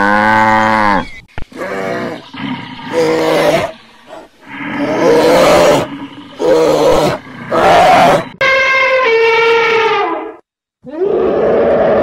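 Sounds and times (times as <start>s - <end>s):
hoarse animal calls: 0.8s - 8.4s.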